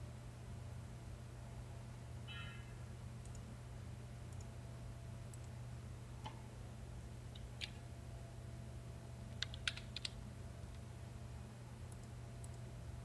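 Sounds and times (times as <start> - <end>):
steady low hum: 0.0 - 13.0
computer mouse clicks: 3.2 - 3.5, 9.3 - 10.8, 11.9 - 12.7
keyboard keystrokes: 9.3 - 10.2.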